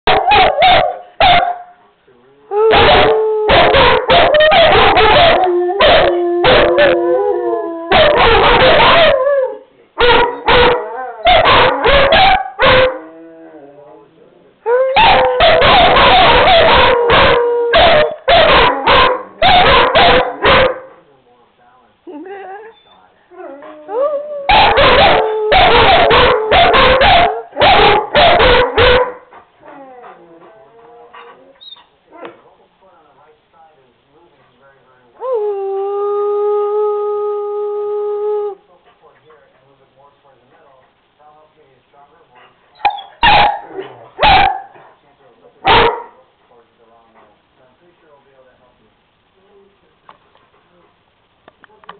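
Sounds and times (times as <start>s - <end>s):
dogs barking and yipping: 0.1s - 1.7s, 2.7s - 7.0s, 7.9s - 9.4s, 10.0s - 13.0s, 14.9s - 20.9s, 24.5s - 32.4s, 42.8s - 44.9s, 45.6s - 46.1s
dogs howling: 2.5s - 20.9s, 23.3s - 32.4s.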